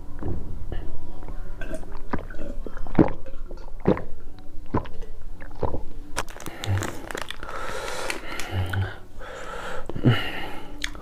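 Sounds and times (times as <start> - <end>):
person gulping a drink: 1.6 - 9.0.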